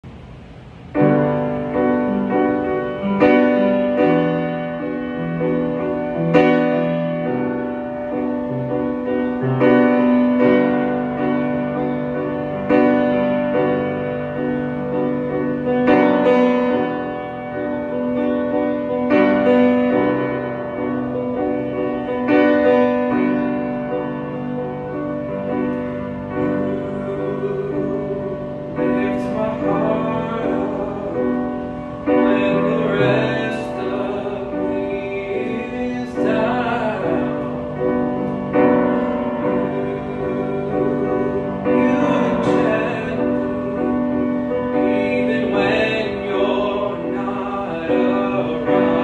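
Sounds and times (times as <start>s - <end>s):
piano chords ringing: 0.0s - 49.0s.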